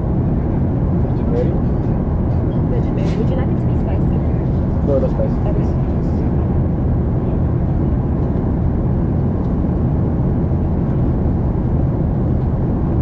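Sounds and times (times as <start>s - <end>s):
airplane cabin noise: 0.0s - 13.0s.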